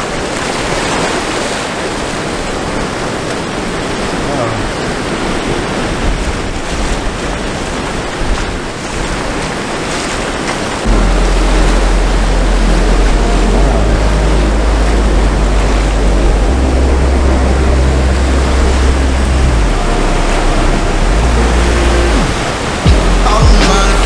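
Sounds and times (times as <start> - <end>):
ocean surf breaking: 0.0 - 24.0
background music with low bass: 10.9 - 24.0.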